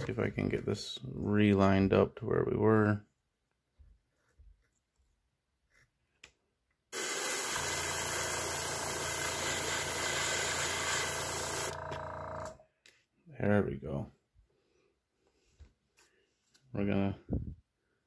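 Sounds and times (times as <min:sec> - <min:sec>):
airbrush spraying hiss: 0:07.0 - 0:11.8
air compressor humming: 0:07.0 - 0:12.6.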